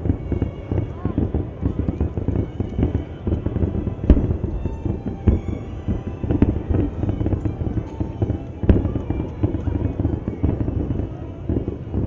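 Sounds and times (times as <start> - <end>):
faint music: 0.0 - 12.0
fireworks bursting: 0.0 - 12.0
low rumble: 3.6 - 9.4.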